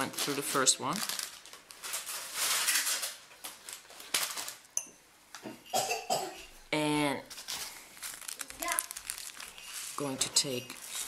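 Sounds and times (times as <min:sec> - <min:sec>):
rustling and clicking of beads: 0:07.3 - 0:11.0.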